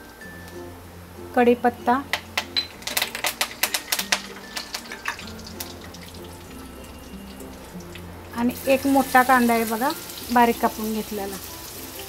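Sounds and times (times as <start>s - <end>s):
oil sizzling: 0.0s - 12.0s
leaves crackling in hot oil: 2.7s - 12.0s.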